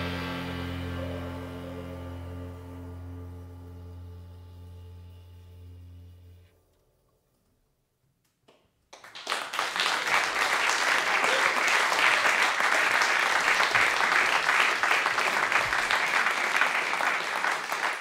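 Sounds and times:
audience applause: 9.0 - 18.0.

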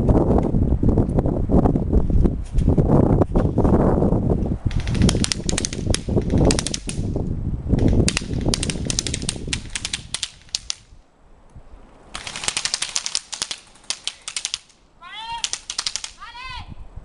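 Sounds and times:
low rumble on microphone: 0.0 - 5.1, 5.8 - 9.8
airsoft guns firing bursts: 4.7 - 7.0, 7.8 - 10.8, 12.1 - 14.8, 15.4 - 16.2.

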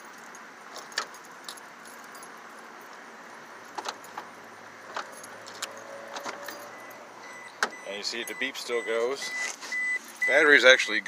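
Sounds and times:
keys jangling: 0.0 - 4.3, 4.9 - 7.0.

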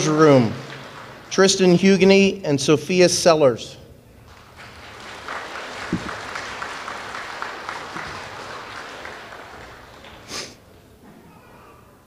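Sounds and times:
audience clapping: 0.0 - 2.1, 4.2 - 10.6.

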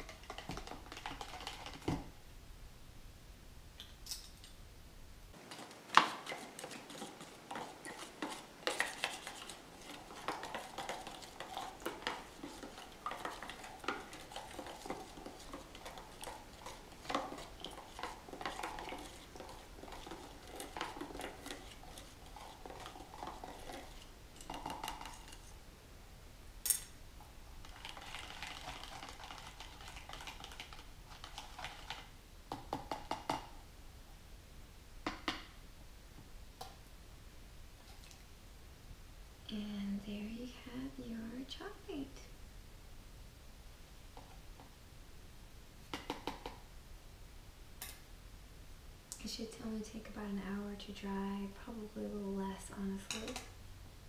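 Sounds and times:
whisk scraping in plastic tub: 5.4 - 25.5.

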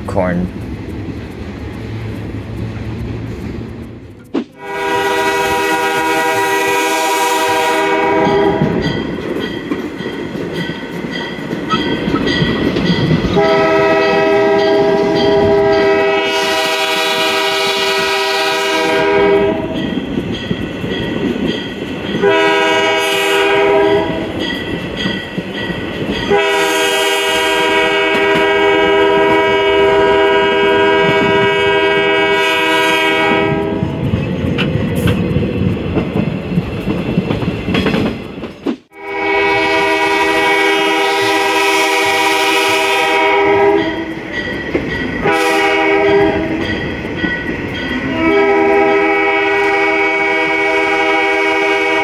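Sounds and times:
train running rumble: 0.0 - 52.0
locomotive air horn blasts: 4.5 - 8.8, 13.4 - 19.8, 22.2 - 24.3, 26.3 - 33.9, 38.9 - 44.1, 45.2 - 46.6, 48.0 - 52.0
wheels clattering over rail joints: 33.7 - 38.9.

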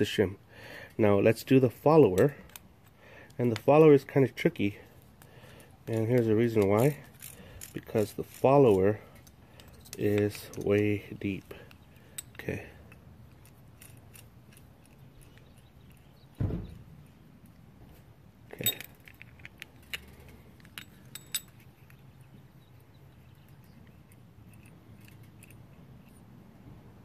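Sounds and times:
metallic clicks and clinks: 2.0 - 16.2, 18.5 - 22.4, 23.2 - 26.3
dull thump: 16.4 - 16.8.

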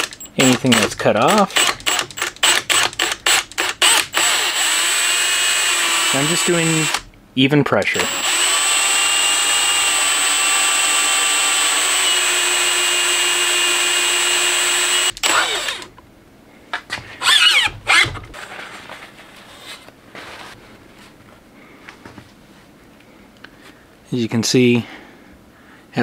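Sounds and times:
knocks and rubbing of parts: 0.0 - 4.3, 16.8 - 20.6
cordless drill running: 0.0 - 7.0, 7.9 - 15.9.

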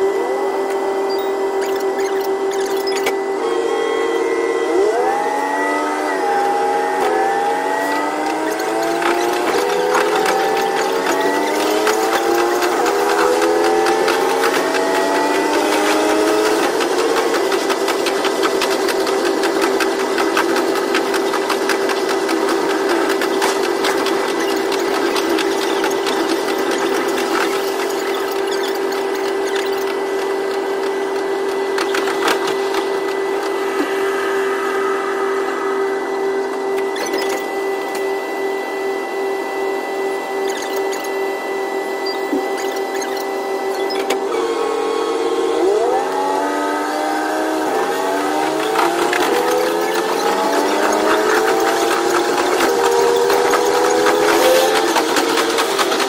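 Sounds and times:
diesel train engine: 0.0 - 56.0
wheels clicking over track: 7.9 - 33.7, 47.4 - 56.0.

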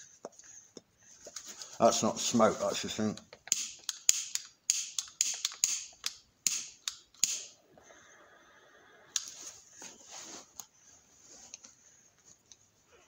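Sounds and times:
lighter clicking: 3.5 - 7.5.

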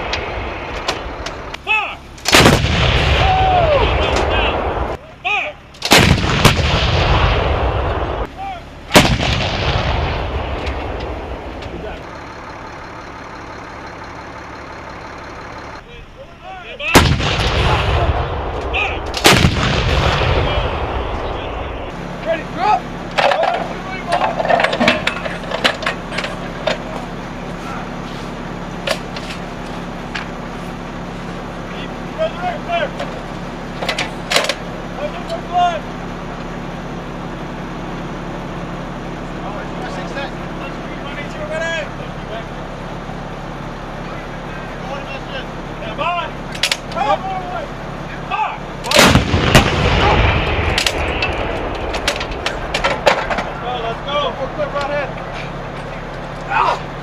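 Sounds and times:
steady low hum: 0.0 - 57.0
howitzer booms with echo: 2.2 - 5.0, 5.8 - 12.4, 16.8 - 22.3, 48.9 - 54.8
metal clanks and knocks: 23.1 - 27.1, 32.9 - 34.7, 50.6 - 53.6.

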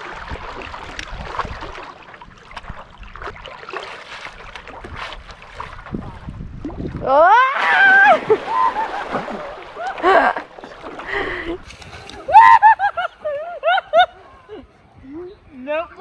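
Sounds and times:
wind on microphone: 0.0 - 3.6, 4.3 - 9.4
paddle splashes: 0.0 - 12.6
person falling into water: 0.0 - 12.8
lake water lapping: 0.0 - 14.8.

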